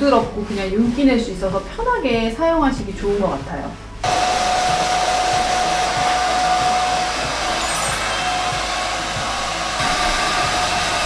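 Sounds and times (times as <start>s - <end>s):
hair dryer blowing: 4.0s - 11.0s
whine in airflow: 4.0s - 11.0s.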